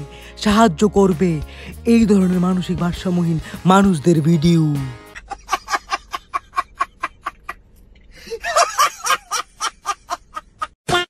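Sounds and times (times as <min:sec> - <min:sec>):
man laughing hard: 0:05.2 - 0:10.8.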